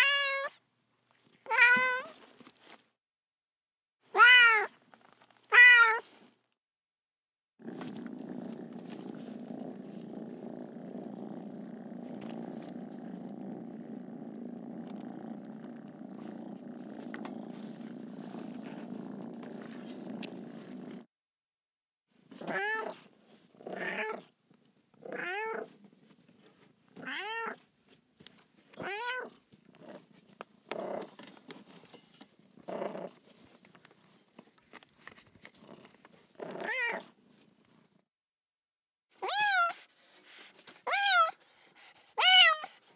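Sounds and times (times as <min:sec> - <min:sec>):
cat meowing: 0:00.0 - 0:00.6, 0:01.5 - 0:02.2, 0:04.1 - 0:04.7, 0:05.5 - 0:06.0, 0:39.2 - 0:39.8, 0:40.9 - 0:41.4, 0:42.2 - 0:42.7
cat purring: 0:07.6 - 0:21.1, 0:29.3 - 0:34.3.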